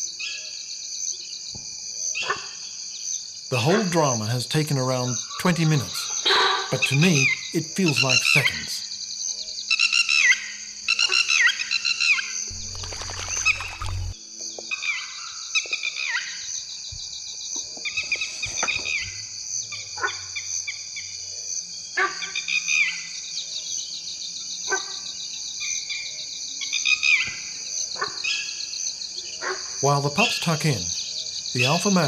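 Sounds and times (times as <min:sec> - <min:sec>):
high-pitched insect chorus: 0:00.0 - 0:32.0
pulsing cricket: 0:00.0 - 0:32.0
birds calling: 0:12.5 - 0:14.2.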